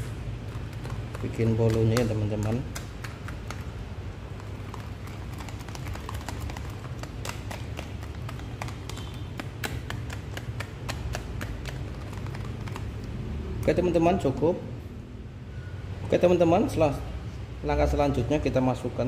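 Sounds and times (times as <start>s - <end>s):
whisk clicking against plastic tub: 0.0s - 13.1s.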